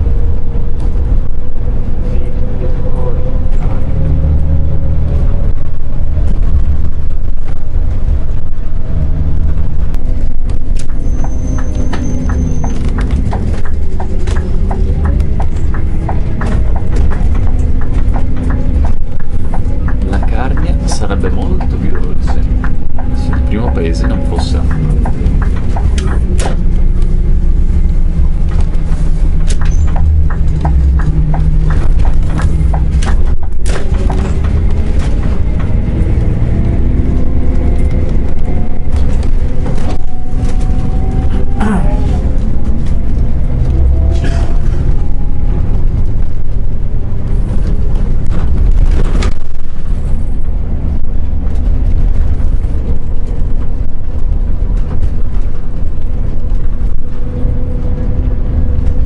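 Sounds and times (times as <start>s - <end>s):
coach diesel engine rumble: 0.0s - 59.0s
clicks and knocks in cabin: 28.5s - 35.8s.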